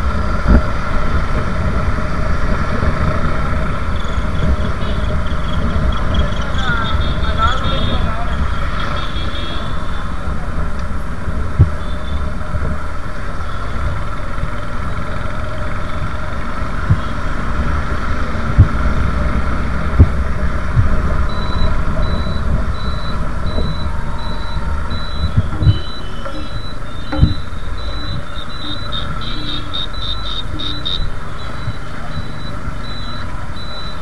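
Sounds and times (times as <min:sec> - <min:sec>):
engine hum: 0:00.0 - 0:34.0
road rumble: 0:00.0 - 0:34.0
wind noise: 0:00.0 - 0:34.0
high electronic beeps: 0:03.6 - 0:10.4, 0:20.0 - 0:34.0
sharp knocks: 0:20.0 - 0:29.6.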